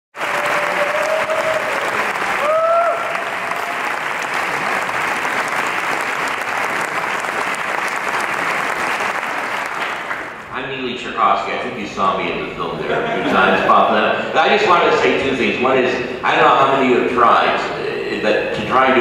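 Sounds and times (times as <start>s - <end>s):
audience applauding: 0.1s - 10.5s
short cheering calls: 0.2s - 6.9s.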